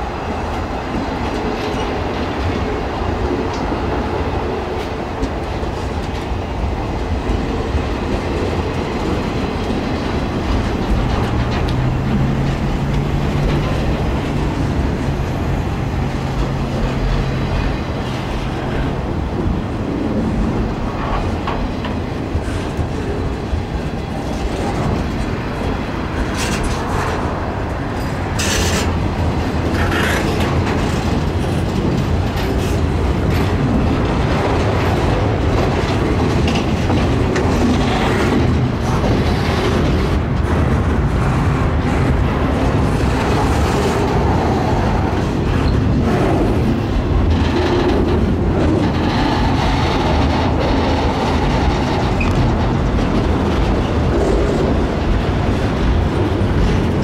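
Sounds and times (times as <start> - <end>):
train wheels rumbling over rail joints: 0.0 - 57.0
train squeals and clanks: 20.3 - 57.0.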